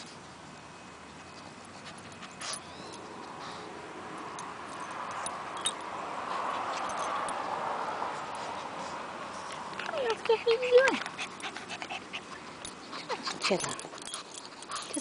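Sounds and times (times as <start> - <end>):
dog sniffing: 8.0 - 15.0.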